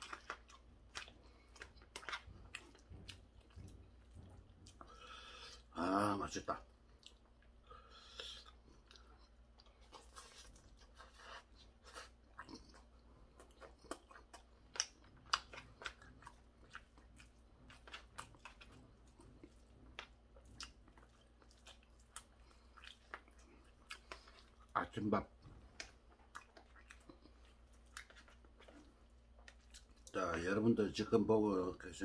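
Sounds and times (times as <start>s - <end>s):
chewing crunchy cartilage: 0.0s - 5.8s, 6.5s - 30.2s.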